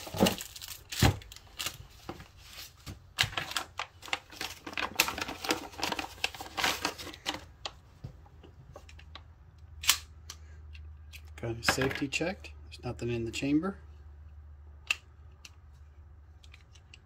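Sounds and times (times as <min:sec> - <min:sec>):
plastic bag crinkling: 0:00.0 - 0:01.8, 0:03.4 - 0:07.5.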